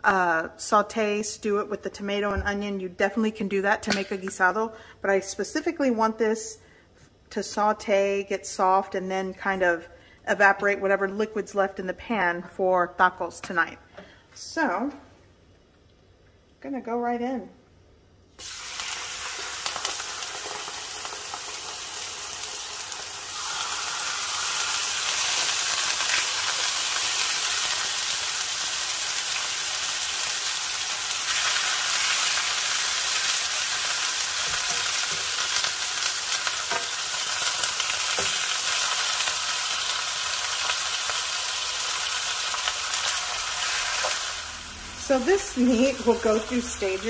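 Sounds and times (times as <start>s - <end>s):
meat sizzling in a frying pan: 18.4s - 47.0s.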